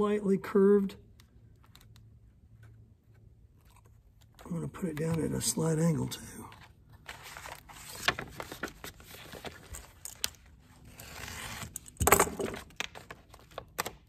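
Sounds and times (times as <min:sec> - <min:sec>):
paper backing peeled: 0:06.5 - 0:11.8.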